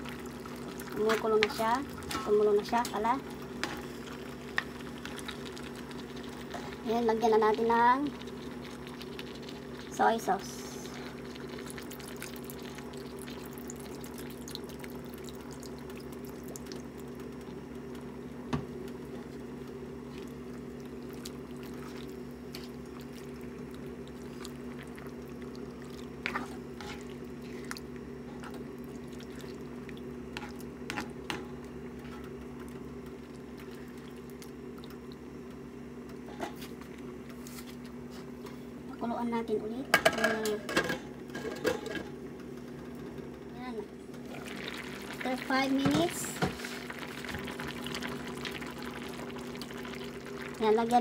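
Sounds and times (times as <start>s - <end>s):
food simmering in sauce: 0.0s - 37.3s, 44.1s - 51.0s
steady low hum: 0.0s - 51.0s
sauce pouring: 44.3s - 50.6s.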